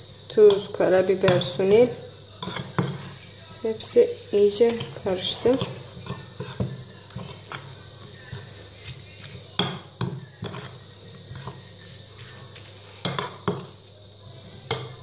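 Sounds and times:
spoon stirring in ceramic bowl: 2.4s - 3.2s, 5.6s - 12.4s.

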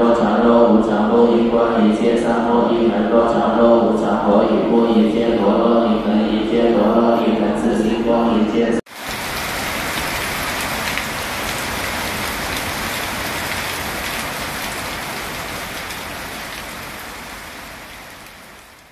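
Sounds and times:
heavy rain on a tiled roof: 8.9s - 18.9s.

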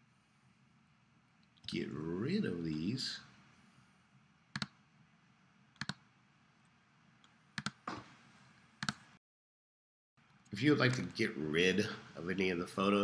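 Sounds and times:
computer mouse clicking: 4.5s - 4.8s, 5.8s - 6.0s, 7.2s - 8.0s, 8.8s - 9.1s.

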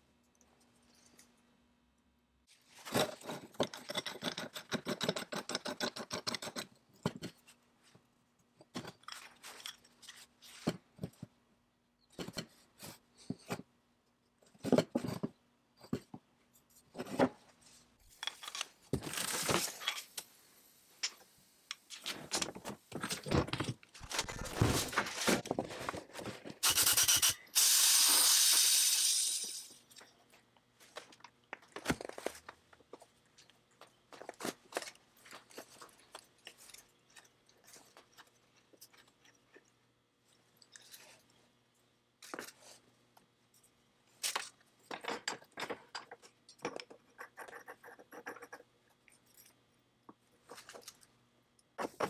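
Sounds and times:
sandblasting cabinet hissing: 26.6s - 29.8s.

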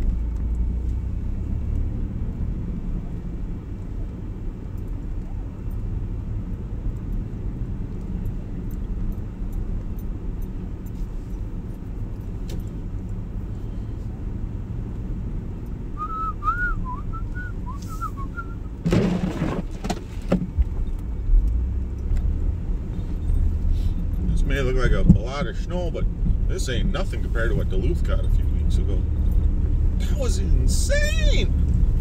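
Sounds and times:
truck engine and road rumble: 0.0s - 32.0s
person whistling a tune: 16.0s - 18.7s.

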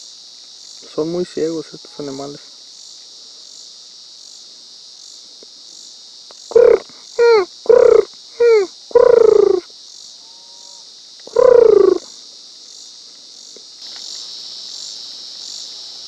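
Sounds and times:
crickets chirping: 0.0s - 16.0s
whining calls falling in pitch: 6.5s - 9.6s, 11.3s - 12.0s.

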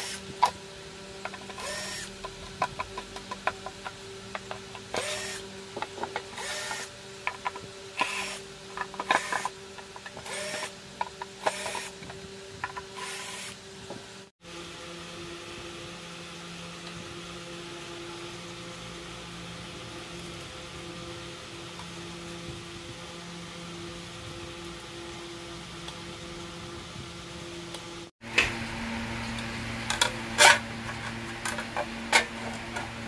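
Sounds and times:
steady hum: 0.0s - 33.0s
cordless screwdriver running in bursts: 1.5s - 2.2s, 4.9s - 5.4s, 6.3s - 6.9s, 8.0s - 8.4s, 9.0s - 9.5s, 10.2s - 10.8s, 11.4s - 12.0s, 13.0s - 13.6s.

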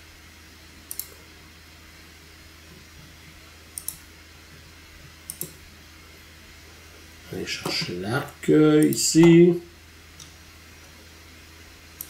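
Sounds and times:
faint low hum: 0.0s - 12.0s
computer mouse clicks: 0.9s - 1.2s, 3.8s - 4.0s, 5.3s - 5.6s.

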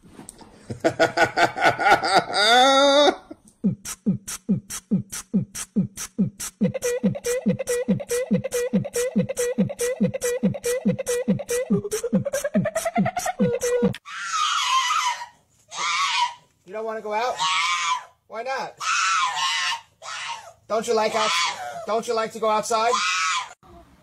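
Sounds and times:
wavering voice-like note: 3.6s - 14.0s
music with fast kick-drum beat: 4.1s - 14.0s.

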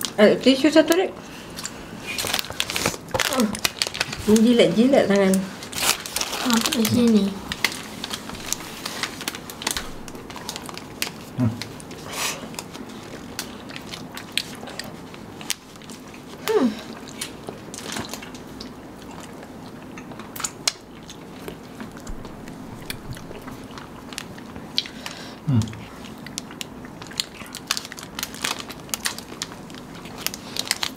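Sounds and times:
wet chewing: 5.6s - 30.9s
person humming with enjoyment: 11.4s - 11.7s, 25.4s - 25.8s.

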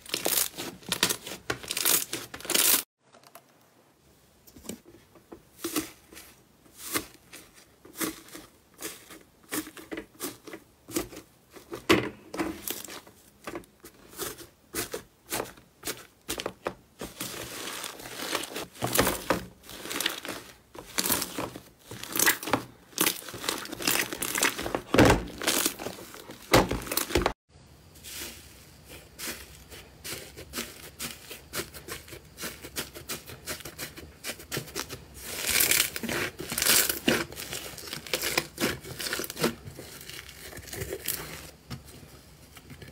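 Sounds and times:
slime crackling and crunching: 0.0s - 2.9s, 14.2s - 27.4s, 32.5s - 41.5s.

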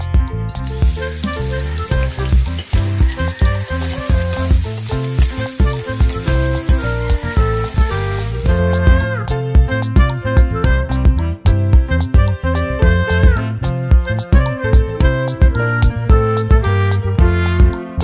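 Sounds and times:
background music with steady beat: 0.0s - 18.0s
food sizzling in hot oil: 0.5s - 9.0s.

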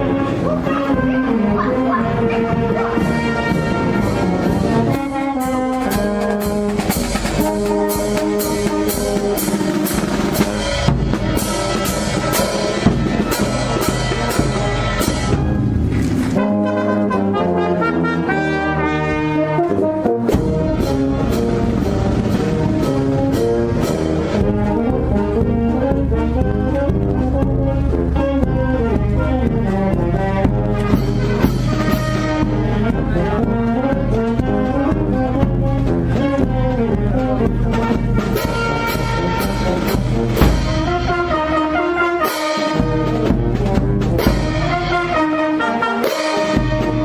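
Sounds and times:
marching brass band playing: 0.0s - 47.0s
snare drum beat: 38.1s - 41.6s.

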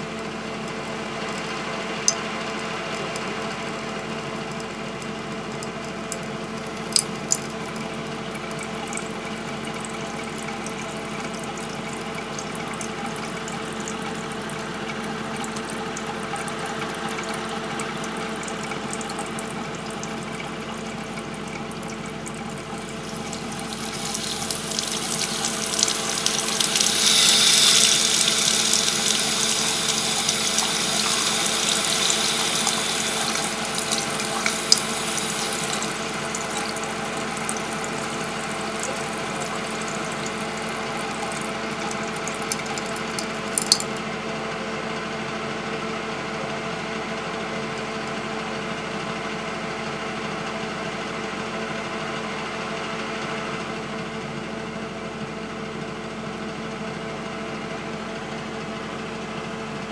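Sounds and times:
water running from faucet into sink: 0.0s - 44.1s
sharp clicks: 42.5s - 44.0s.

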